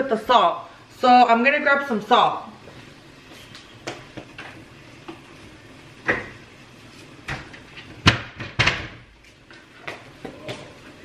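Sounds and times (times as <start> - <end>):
cabinet knocks and clacks: 7.3 - 9.0.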